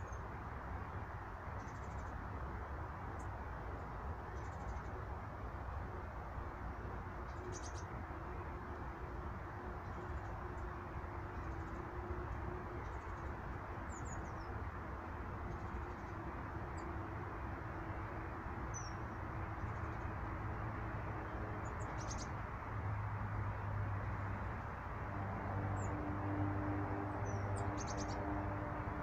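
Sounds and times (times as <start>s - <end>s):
small birds chirping: 7.3s - 7.9s, 21.7s - 22.3s, 27.2s - 28.2s.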